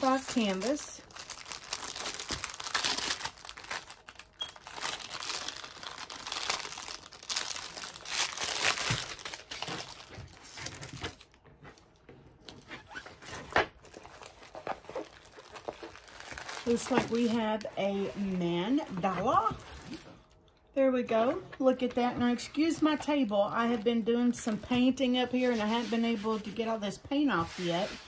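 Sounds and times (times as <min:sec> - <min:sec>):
packaging crinkling and rustling: 0:00.0 - 0:20.4.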